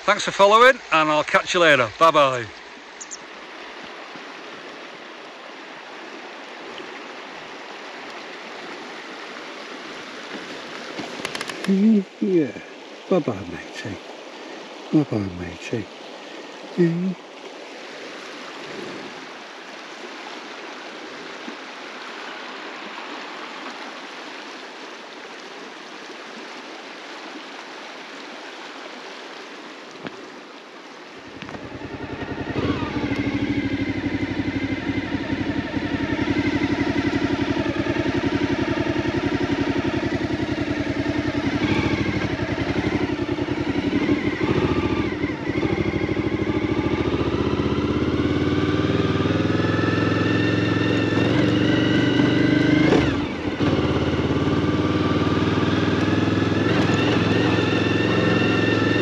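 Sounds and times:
motorcycle engine running: 0:11.0 - 0:12.5, 0:31.3 - 0:59.0.

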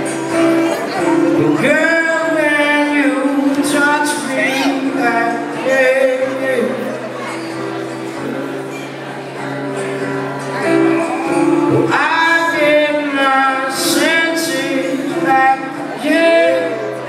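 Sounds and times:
man singing: 0:00.0 - 0:07.3, 0:10.6 - 0:17.0
acoustic guitar strumming: 0:00.0 - 0:17.0.

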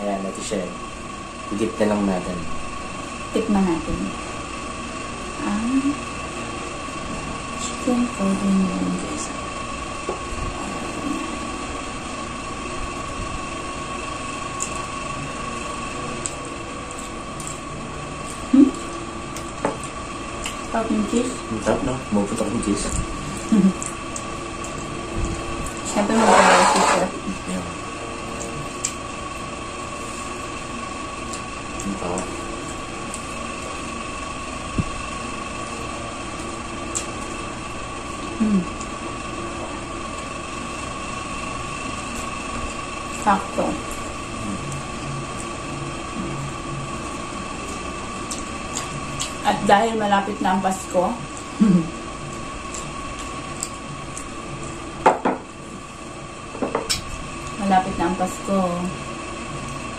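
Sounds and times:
background hum: 0:00.0 - 0:59.9
high whine: 0:00.0 - 0:59.9
people eating: 0:10.2 - 0:12.6, 0:14.5 - 0:40.3, 0:41.0 - 0:54.9
person humming: 0:10.5 - 0:11.6, 0:38.3 - 0:38.9, 0:44.3 - 0:44.8, 0:51.6 - 0:52.0.

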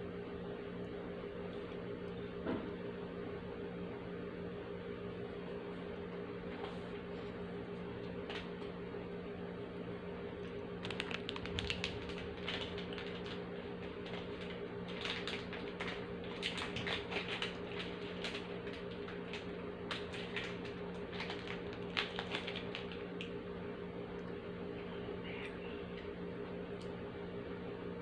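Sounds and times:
plastic wrapper crinkling: 0:10.5 - 0:23.2.

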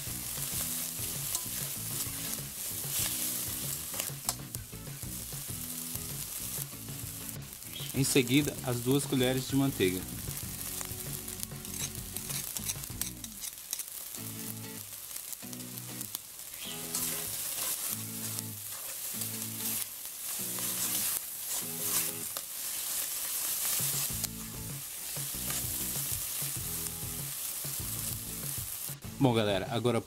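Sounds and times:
background music: 0:00.0 - 0:13.4, 0:23.8 - 0:30.0
food sizzling in a pot: 0:00.0 - 0:30.0
scrape of stirring: 0:00.8 - 0:04.1, 0:11.6 - 0:13.8, 0:16.9 - 0:24.2.

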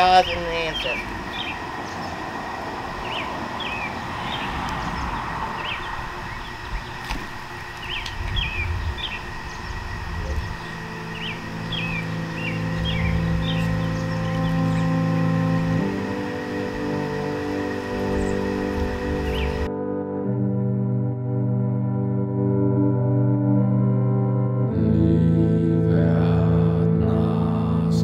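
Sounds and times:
bird chirping: 0:00.0 - 0:02.3, 0:03.0 - 0:19.7
low background rumble: 0:00.0 - 0:19.7
droning music: 0:00.0 - 0:28.0.

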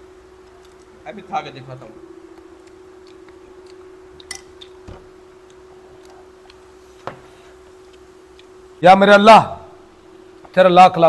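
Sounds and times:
steady low hum: 0:00.0 - 0:11.0
spoon and glass clicks: 0:04.2 - 0:04.8.

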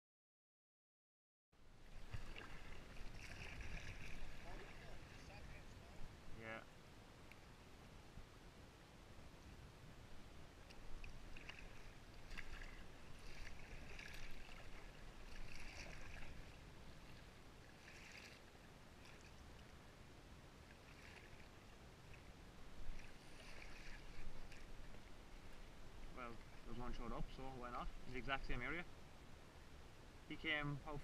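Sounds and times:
water splashing around a kayak: 0:01.8 - 0:06.2, 0:10.2 - 0:28.8.

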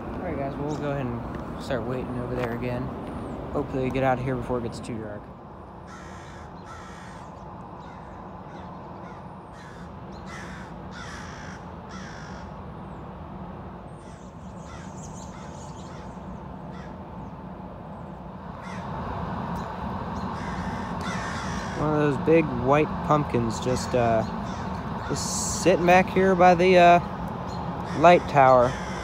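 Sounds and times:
low background rumble: 0:00.0 - 0:29.0
crows cawing: 0:05.8 - 0:12.6, 0:14.0 - 0:17.0, 0:18.6 - 0:19.0, 0:20.2 - 0:22.2, 0:24.2 - 0:25.9, 0:27.7 - 0:29.0.

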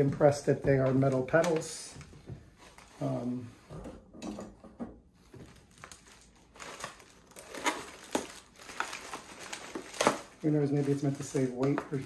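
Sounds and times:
plastic bag crinkling: 0:05.3 - 0:12.0.

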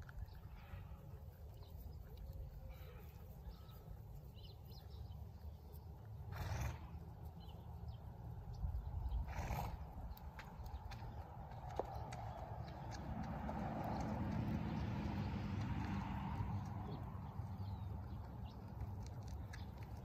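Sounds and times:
wind rumble on microphone: 0:08.4 - 0:20.0.

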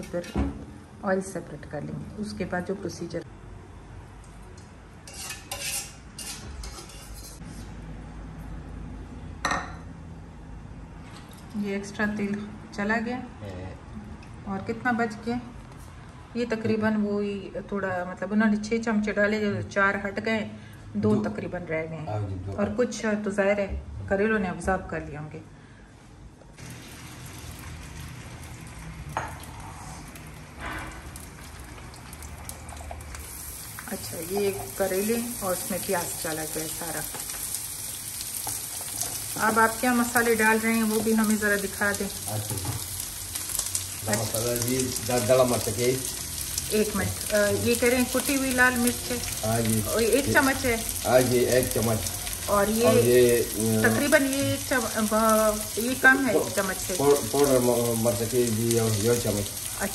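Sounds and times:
vegetables sizzling in oil: 0:26.6 - 0:59.9.

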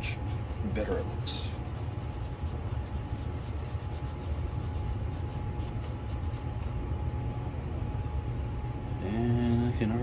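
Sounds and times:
polishing paper scratching lens: 0:00.0 - 0:07.0
steady low hum: 0:00.0 - 0:10.0.

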